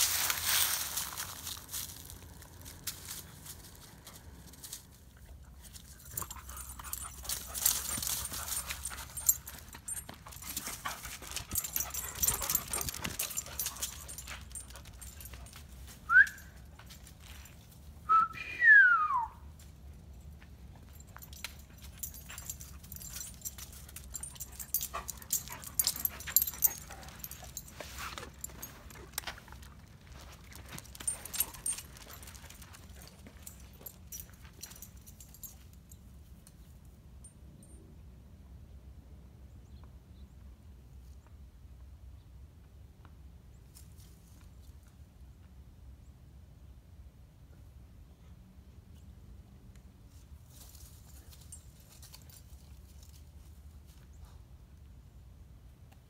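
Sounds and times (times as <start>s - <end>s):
light footfalls of dogs: 0.0s - 17.9s, 19.6s - 36.1s.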